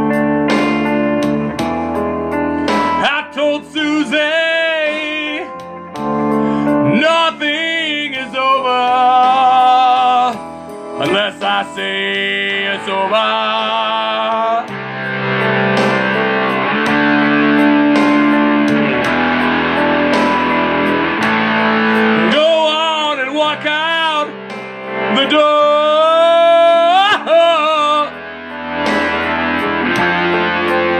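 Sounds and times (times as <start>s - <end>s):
blues-rock song: 0.0s - 30.9s
guitar: 0.0s - 30.9s
man singing rough vocal: 3.0s - 5.6s, 6.7s - 14.8s, 22.0s - 24.4s, 25.1s - 28.2s.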